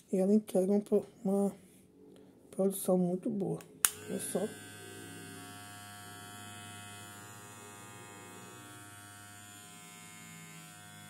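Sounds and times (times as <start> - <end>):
hair clipper motor buzzing: 3.8 - 11.0.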